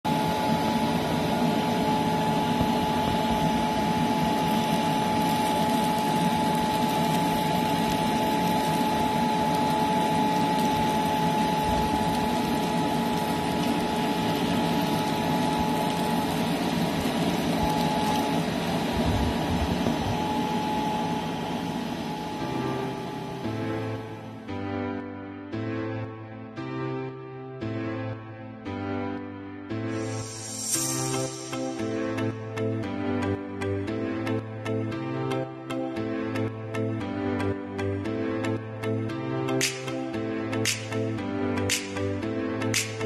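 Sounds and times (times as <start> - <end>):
fan whining: 0.1 - 24.6, 29.9 - 35.4
rush of air: 30.0 - 32.0.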